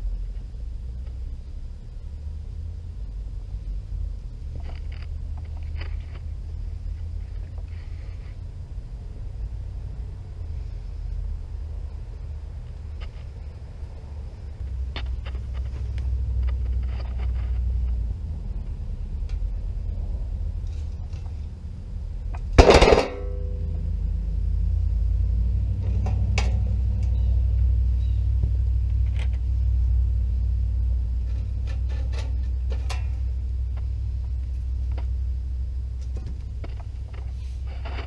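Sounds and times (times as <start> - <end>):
wood fire rumbling: 11.3 - 38.0
loud metal clank: 22.5 - 23.6.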